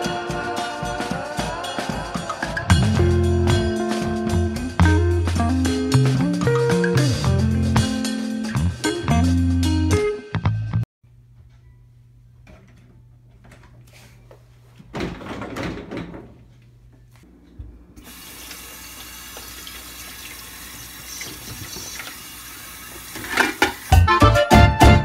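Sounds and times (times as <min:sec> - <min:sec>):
tap running into sink: 0:21.0 - 0:22.3, 0:22.9 - 0:24.0
dishes clattering: 0:23.2 - 0:23.8.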